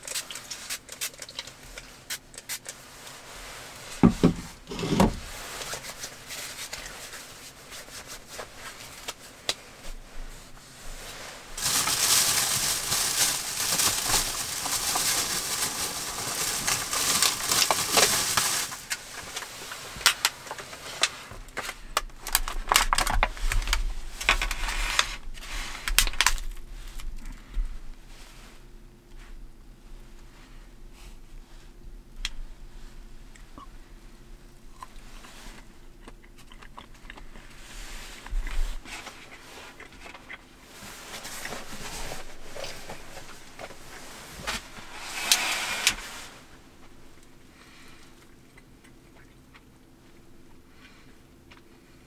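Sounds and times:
plastic packaging rustling: 0:10.6 - 0:27.5, 0:35.0 - 0:48.0.

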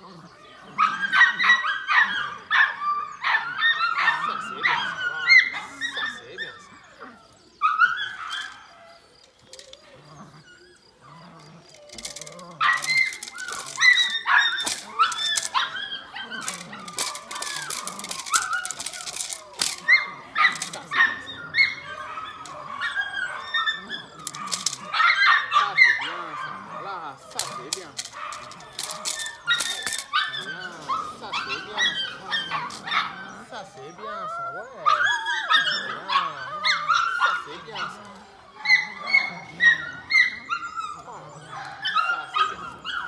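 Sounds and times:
puppy yipping and whining: 0:00.4 - 0:43.0
rustling: 0:11.0 - 0:22.8, 0:24.1 - 0:25.0, 0:27.2 - 0:31.2.

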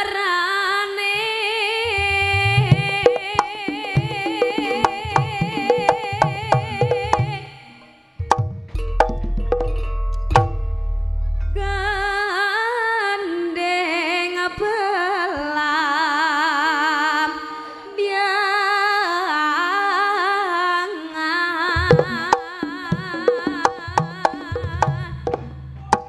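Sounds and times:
woman singing with vibrato: 0:00.0 - 0:08.2, 0:11.6 - 0:25.6
sharp drum strokes: 0:01.9 - 0:07.5, 0:21.8 - 0:26.0
sustained accompanying tone: 0:01.9 - 0:12.2.

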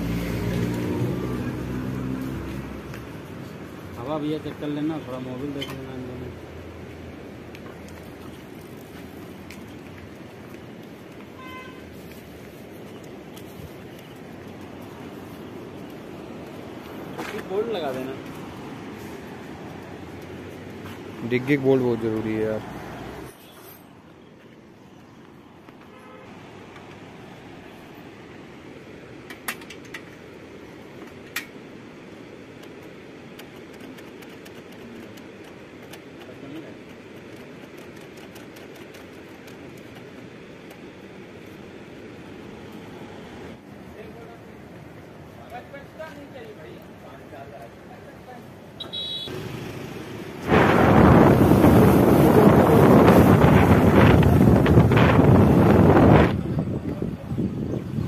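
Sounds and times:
background noise: 0:00.0 - 0:58.0
metal tools clinking on bolts: 0:23.3 - 0:24.0
wind rushing over microphone: 0:50.3 - 0:58.0.

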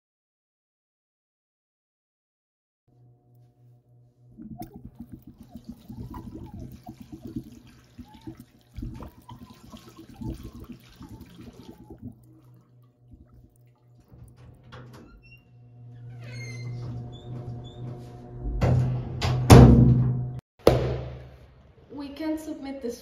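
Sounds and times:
water splashing over hands: 0:04.4 - 0:14.6
tap water running into sink: 0:04.4 - 0:15.1.

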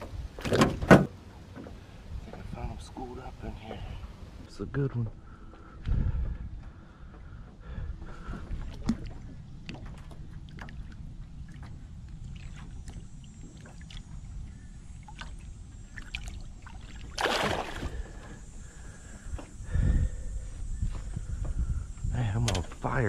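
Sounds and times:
heavy thump against boat: 0:00.0 - 0:01.1
water sloshing and dripping: 0:08.0 - 0:18.4
loud water splash: 0:17.0 - 0:18.0.

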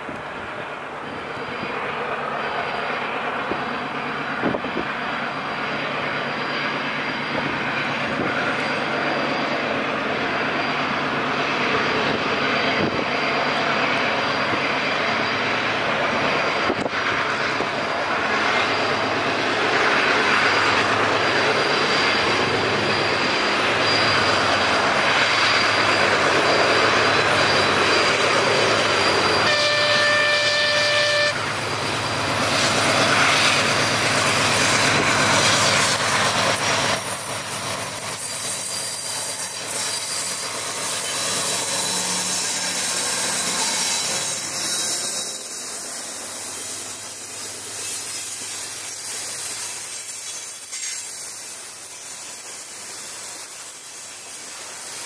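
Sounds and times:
diesel locomotive engine working: 0:00.0 - 0:55.0
wheels rumbling on rail: 0:00.0 - 0:55.0
train horn: 0:29.3 - 0:31.5.

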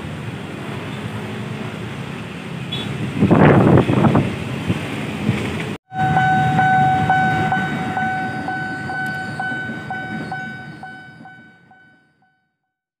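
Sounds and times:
low rumble of rail traffic: 0:00.0 - 0:12.1
level-crossing warning bell: 0:05.9 - 0:12.4.

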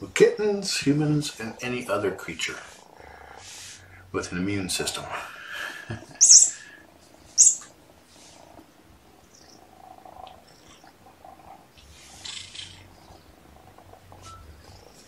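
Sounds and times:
kitten purring: 0:00.1 - 0:15.0
kitten hissing: 0:02.6 - 0:04.0, 0:06.1 - 0:08.6, 0:09.6 - 0:12.9.

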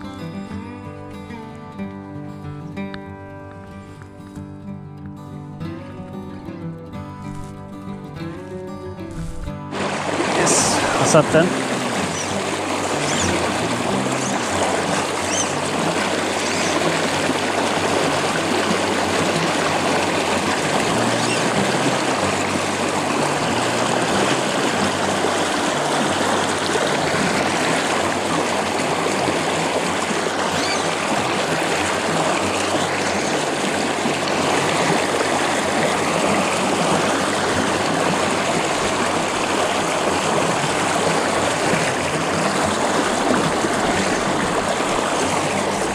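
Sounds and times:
river current rushing and splashing: 0:09.2 - 0:45.9.

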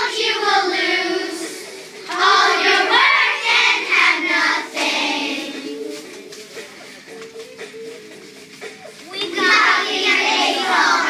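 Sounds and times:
young children singing: 0:00.0 - 0:06.3, 0:09.0 - 0:11.0.

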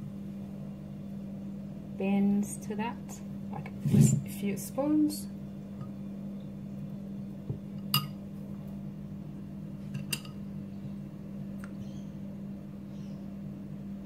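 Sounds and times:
steady low hum: 0:00.0 - 0:14.0
metal spoon clinking on bowl: 0:07.9 - 0:08.2.

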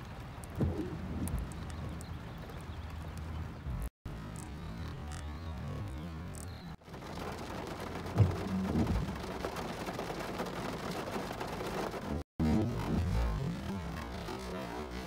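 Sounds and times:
rain pattering on car: 0:00.0 - 0:15.0
thunder clap and rumble: 0:05.5 - 0:14.2.

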